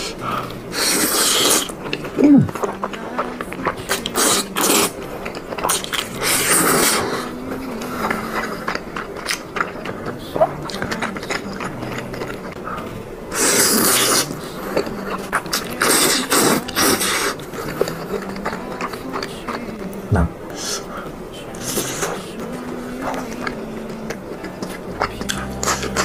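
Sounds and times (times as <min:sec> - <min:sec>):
noodles being slurped: 0:00.0 - 0:03.0, 0:03.8 - 0:12.6, 0:13.3 - 0:19.6
chewing and mouth noises: 0:00.0 - 0:26.0.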